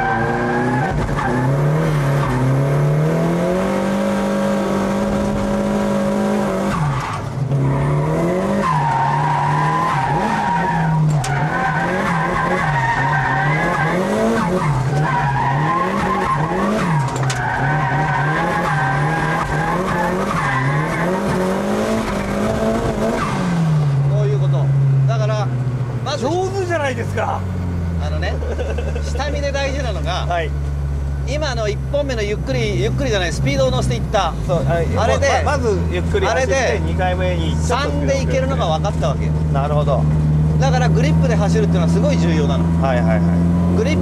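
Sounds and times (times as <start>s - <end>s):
car engine revving: 0.0s - 44.0s
tyres squealing: 8.5s - 22.4s.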